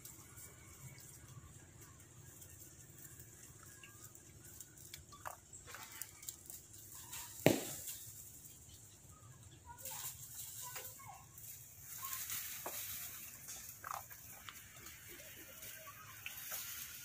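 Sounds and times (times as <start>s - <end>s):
steady high hiss: 6.2s - 8.9s
sharp knock: 7.5s - 7.8s.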